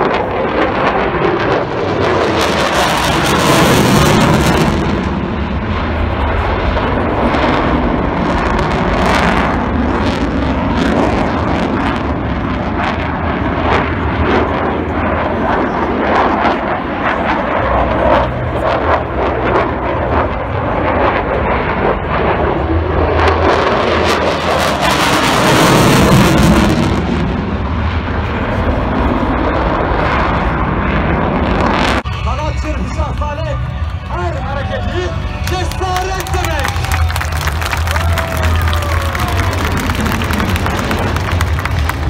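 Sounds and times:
fighter jet roaring overhead: 0.0s - 42.0s.

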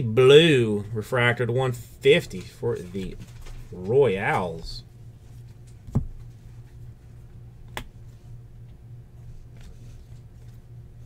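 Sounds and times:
steady low hum: 0.0s - 11.0s
trading cards being handled: 2.2s - 11.0s.

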